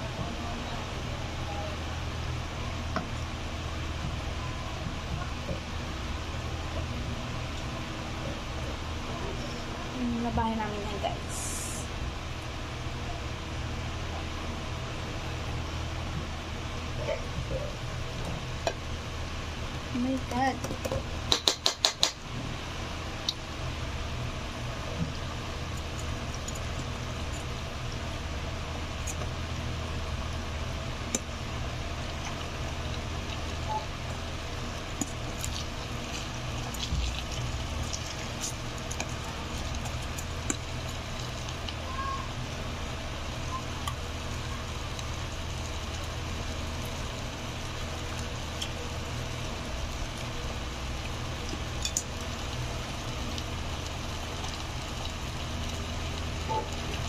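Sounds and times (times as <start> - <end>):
steady low hum: 0.0 - 57.0
food frying in hot oil: 0.1 - 57.0
oil popping and crackling: 25.1 - 57.0.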